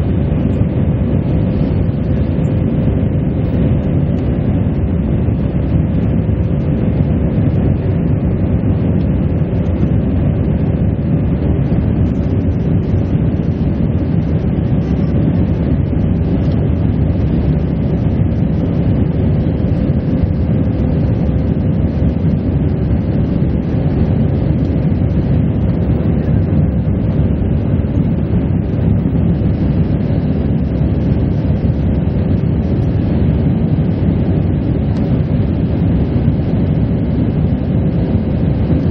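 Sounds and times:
engine rumble and rushing air: 0:00.0 - 0:38.9
faint steady hum: 0:00.0 - 0:38.9.

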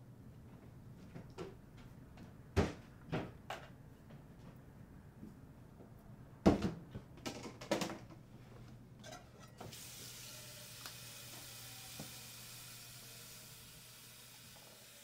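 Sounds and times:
steady hiss: 0:09.7 - 0:15.0.

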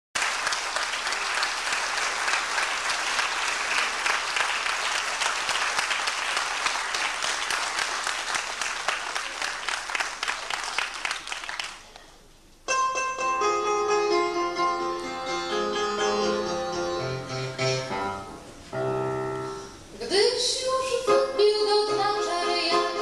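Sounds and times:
audience applauding: 0:00.2 - 0:12.2.

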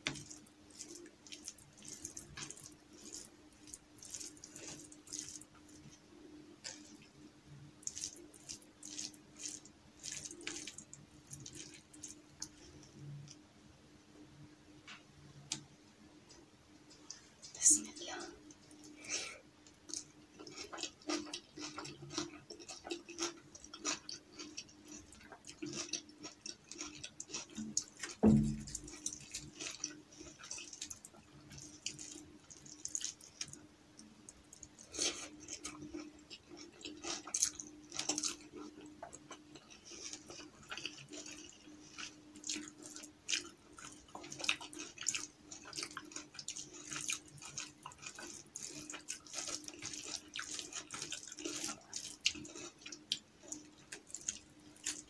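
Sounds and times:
fingers squelching in food: 0:00.0 - 0:06.0
faint steady hum: 0:00.0 - 0:55.0
chewing and lip smacks: 0:00.1 - 0:06.0, 0:07.8 - 0:13.4, 0:19.6 - 0:55.0
low thump: 0:28.2 - 0:28.8.

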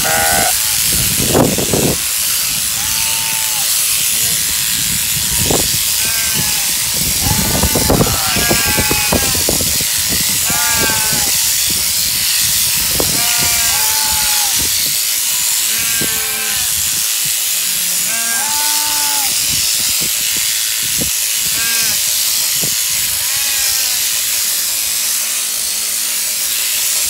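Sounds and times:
sheep bleating: 0:00.0 - 0:00.6, 0:02.3 - 0:03.9, 0:06.0 - 0:09.5, 0:10.4 - 0:11.4, 0:13.1 - 0:14.6, 0:15.5 - 0:16.8, 0:18.0 - 0:19.4
electric shears buzzing: 0:00.0 - 0:27.0.

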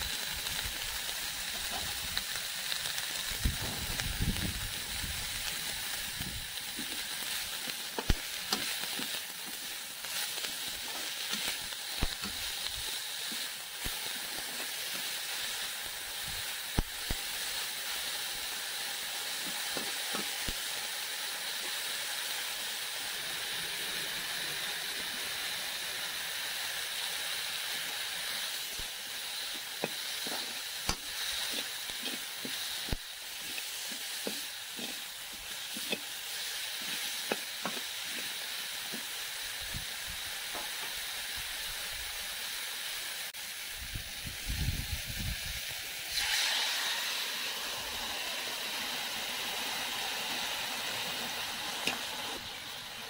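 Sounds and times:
leaves sizzling in a pan: 0:00.0 - 0:53.0
metal spatula scraping pan: 0:31.4 - 0:32.6, 0:33.4 - 0:35.1.

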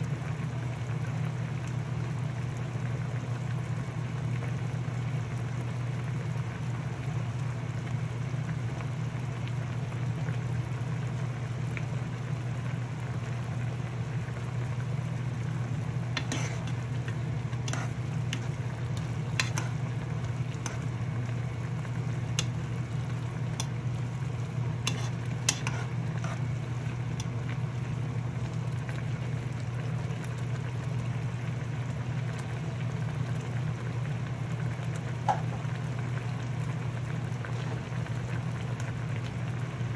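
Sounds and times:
food cooking hiss: 0:14.5 - 0:28.5.

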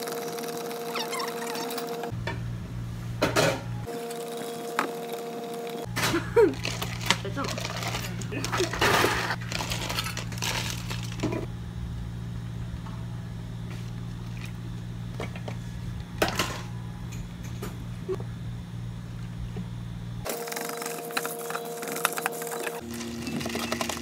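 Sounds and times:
low electrical hum: 0:00.0 - 0:24.0
ice cubes clattering into plastic cups: 0:06.6 - 0:11.3, 0:22.0 - 0:24.0.

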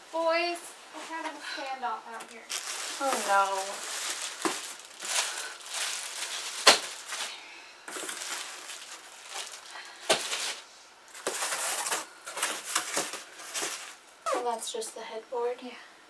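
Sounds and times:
plastic wrapping crinkling: 0:02.1 - 0:14.5.

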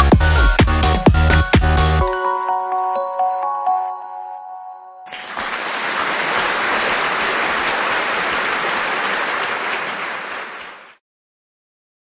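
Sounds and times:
loud steady hiss: 0:05.1 - 0:10.4.

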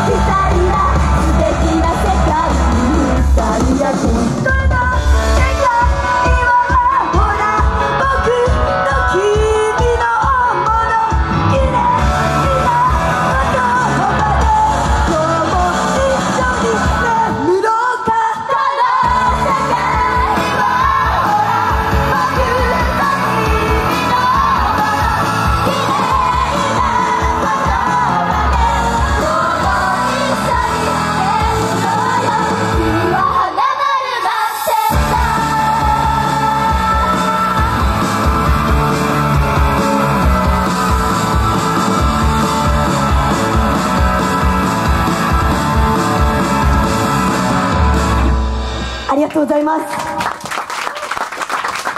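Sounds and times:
live pop rock song: 0:00.0 - 0:50.3
group singing: 0:11.7 - 0:39.4.

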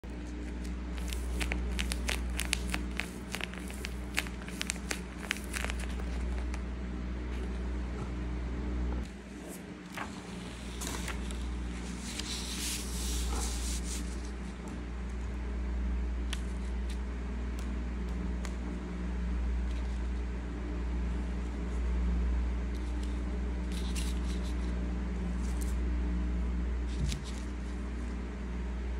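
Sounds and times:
steady low hum: 0:00.0 - 0:28.9
paper crinkling when squeezed: 0:00.2 - 0:06.6
paper sliding across table: 0:09.3 - 0:14.4.

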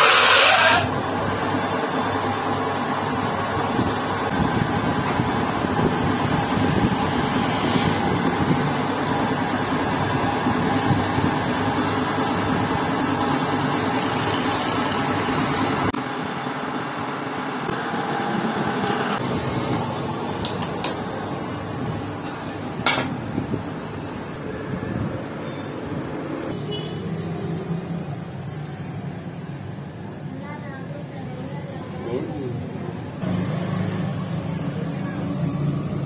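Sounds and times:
metal lathe cutting: 0:00.0 - 0:00.9.

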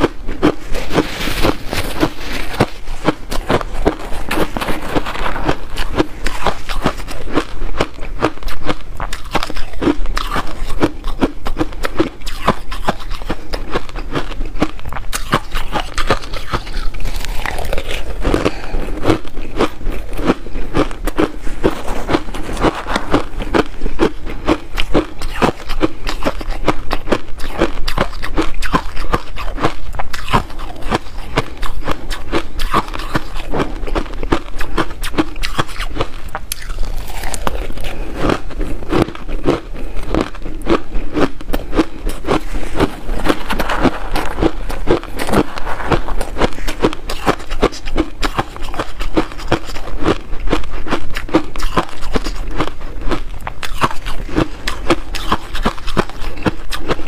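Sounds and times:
ice being crunched: 0:00.4 - 0:07.1, 0:15.3 - 0:20.1, 0:36.5 - 0:38.6, 0:42.1 - 0:49.8.

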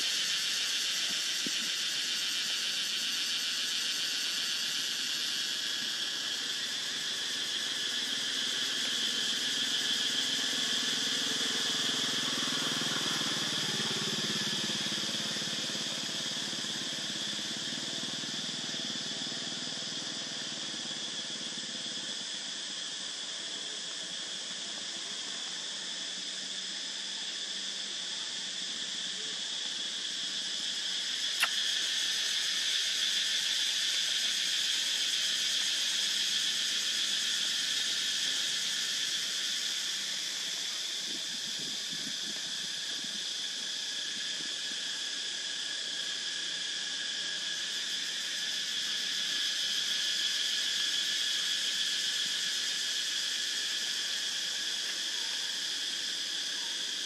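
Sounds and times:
forest insects droning: 0:00.0 - 0:57.0
sharp click: 0:31.4 - 0:31.6.

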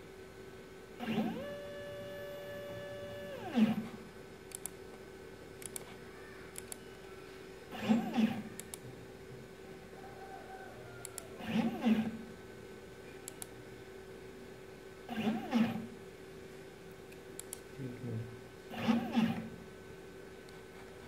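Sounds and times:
steady hum: 0:00.0 - 0:21.0
stepper motors whining: 0:01.0 - 0:04.0, 0:06.6 - 0:08.8, 0:11.0 - 0:12.2, 0:15.1 - 0:15.9, 0:18.7 - 0:19.5.

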